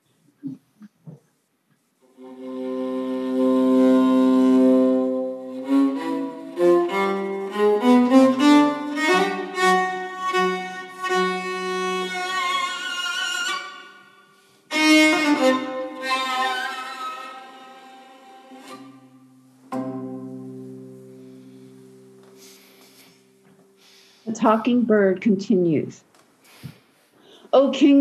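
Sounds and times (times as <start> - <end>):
solo violin bowed: 2.1 - 24.2.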